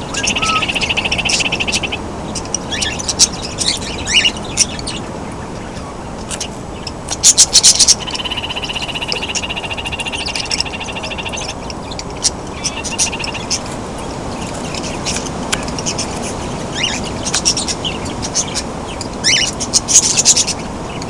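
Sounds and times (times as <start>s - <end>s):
pulsing bird trill: 0.0s - 1.9s, 7.2s - 11.8s
parakeets chirping and calling: 0.0s - 21.0s
sharp loud bird calls: 0.0s - 21.0s.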